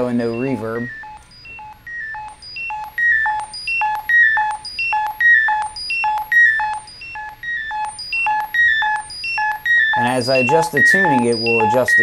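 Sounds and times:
synthesizer beeping notes: 0.0s - 12.0s.

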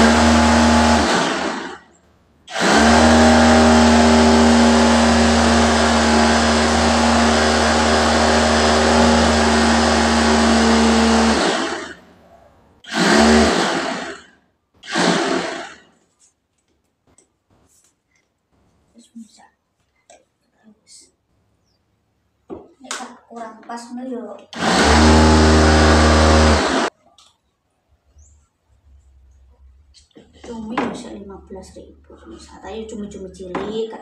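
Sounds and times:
electric food chopper grinding: 0.0s - 1.9s, 2.5s - 12.0s, 12.8s - 15.9s, 24.6s - 26.9s.

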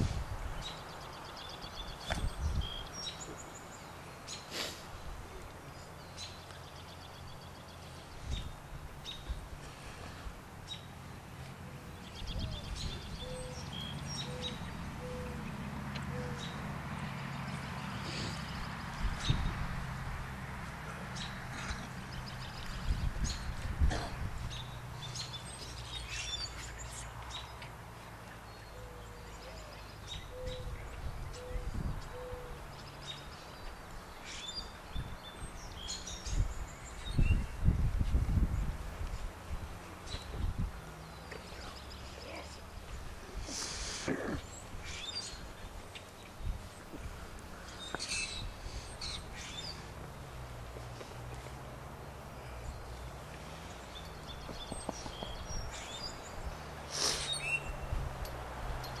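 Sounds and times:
birds chirping: 0.0s - 19.8s, 20.6s - 39.1s, 39.8s - 59.0s
low cooing call: 13.2s - 16.6s, 31.4s - 32.6s.

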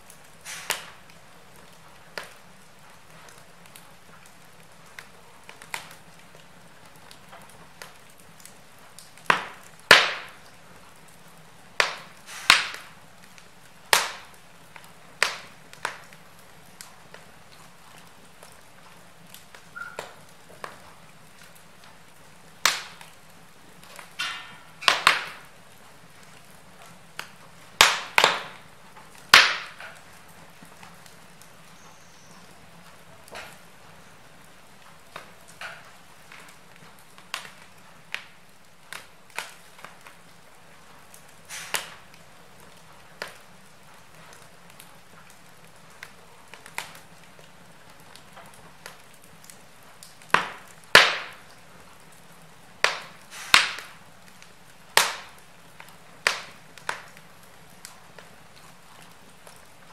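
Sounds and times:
faint steady hiss: 0.0s - 59.9s
fire crackling and popping: 0.0s - 59.9s.

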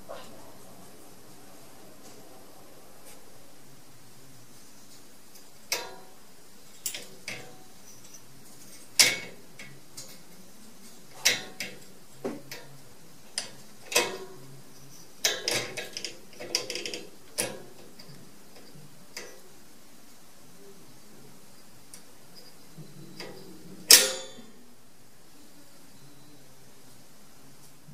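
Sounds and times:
cage latch clicking and rattling: 6.8s - 7.6s, 9.0s - 10.1s, 11.2s - 11.9s, 13.4s - 14.3s, 15.2s - 19.4s.

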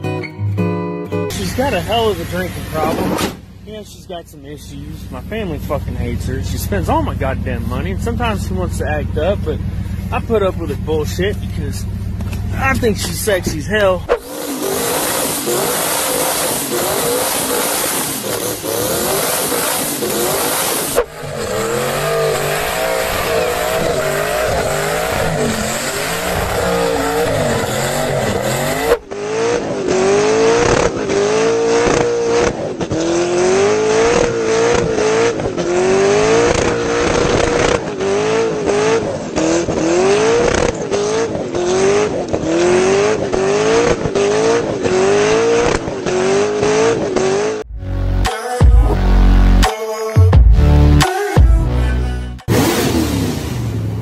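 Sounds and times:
tyres squealing: 1.3s - 29.2s
car engine revving hard: 1.3s - 47.7s, 52.4s - 54.0s.

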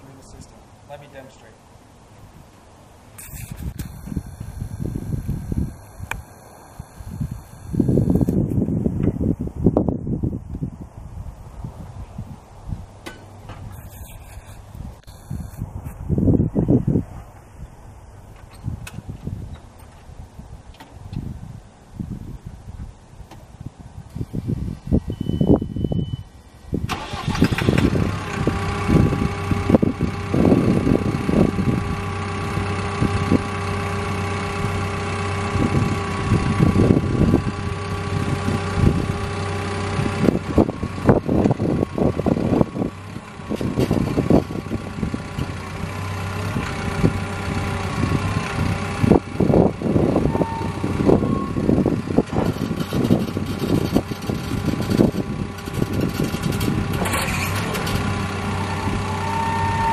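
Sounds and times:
diesel engine running: 3.1s - 8.9s, 12.8s - 15.8s, 24.1s - 59.9s.

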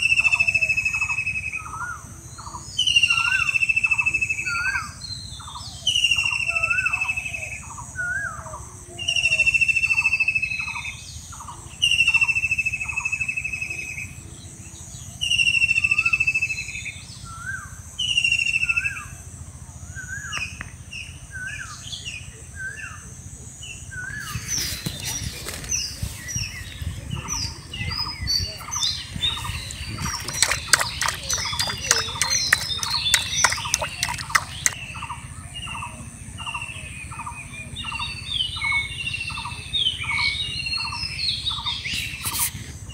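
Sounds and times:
sharp bird clicks: 29.6s - 34.8s.

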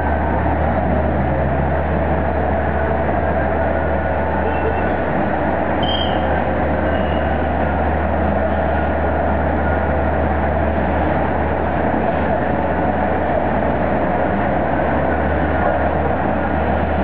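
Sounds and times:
dense city traffic: 0.0s - 17.0s
brief high tone: 5.8s - 6.3s.

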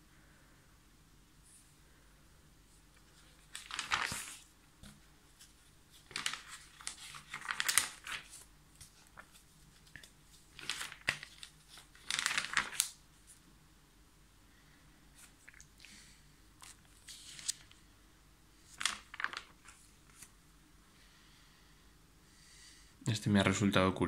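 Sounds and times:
magazine pages rustling: 2.9s - 13.4s, 16.6s - 17.8s, 18.6s - 20.4s.

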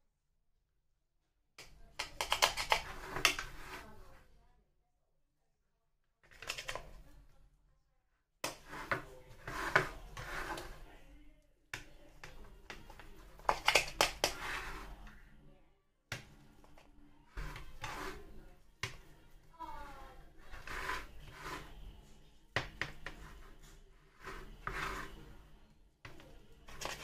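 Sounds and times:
knife tapping and scraping plate: 2.0s - 3.8s, 8.4s - 10.9s, 11.8s - 15.1s, 17.4s - 19.1s, 20.4s - 21.8s, 22.6s - 25.3s, 26.1s - 27.0s.

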